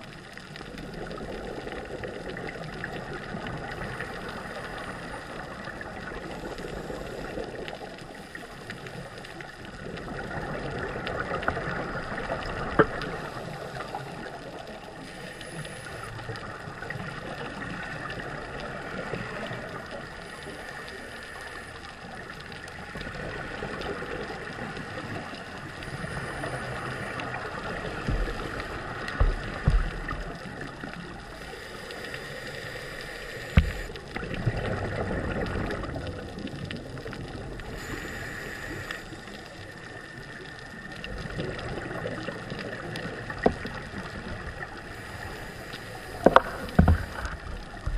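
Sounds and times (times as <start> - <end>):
exhaled bubbles underwater: 0.0 - 47.9
diver regulator breathing: 3.7 - 9.6, 11.4 - 16.6, 17.4 - 22.2, 24.7 - 34.2, 37.6 - 40.8, 43.3 - 47.9
dull knocks: 29.2 - 30.3, 46.3 - 47.2.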